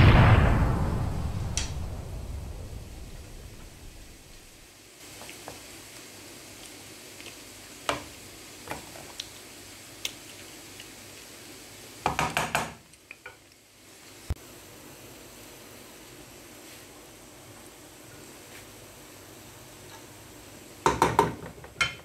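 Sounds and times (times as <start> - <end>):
faint steady hiss: 0.0 - 22.0
wooden spatula knocking on pan: 12.0 - 12.8, 20.8 - 22.0.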